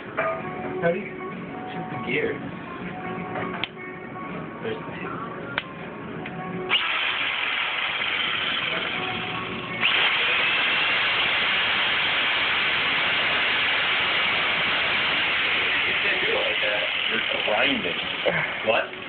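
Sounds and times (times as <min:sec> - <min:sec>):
electric saw running: 0:06.7 - 0:19.0.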